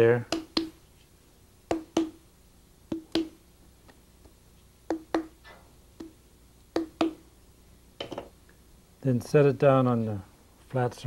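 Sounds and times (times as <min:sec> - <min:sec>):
sharp taps on clay pot: 0:00.3 - 0:00.8, 0:01.7 - 0:02.2, 0:02.9 - 0:03.4, 0:04.9 - 0:05.4, 0:06.8 - 0:07.2.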